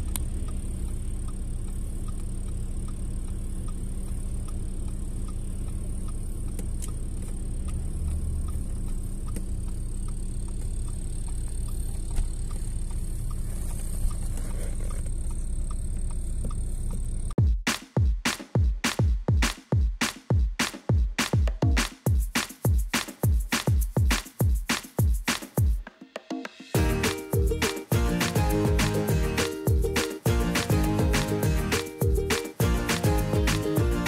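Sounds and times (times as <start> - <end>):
car engine and tyre rumble: 0.0 - 17.4.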